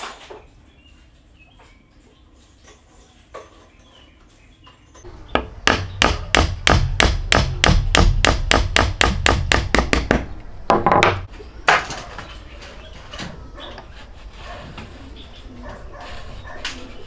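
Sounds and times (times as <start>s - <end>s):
hammer striking wooden peg: 5.3s - 11.3s.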